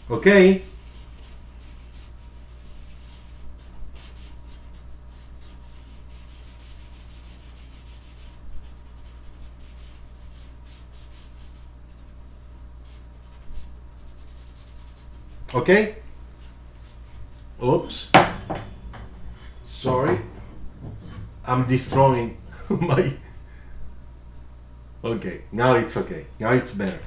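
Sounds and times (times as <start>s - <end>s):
steady low hum: 0.0s - 27.0s
marker scratching on paper: 0.6s - 3.4s, 4.0s - 12.1s, 12.8s - 15.2s.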